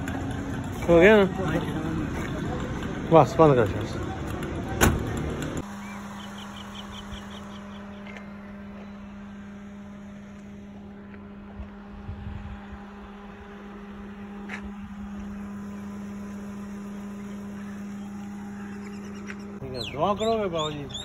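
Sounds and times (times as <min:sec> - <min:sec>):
low mechanical hum: 0:04.3 - 0:21.0.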